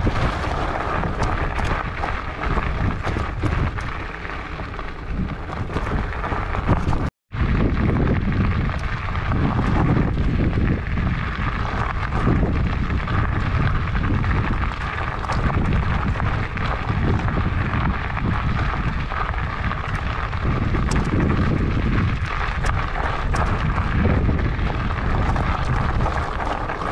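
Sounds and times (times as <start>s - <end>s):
tyres crunching over gravel: 0.0s - 26.9s
wind buffeting microphone: 0.0s - 26.9s.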